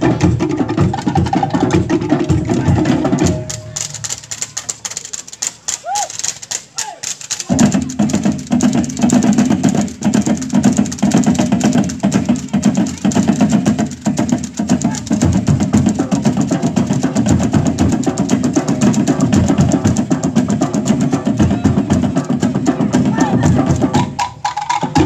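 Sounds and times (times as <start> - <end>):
deep drumming: 0.0 - 4.4, 7.4 - 25.0
slit log drum strokes: 0.0 - 25.0.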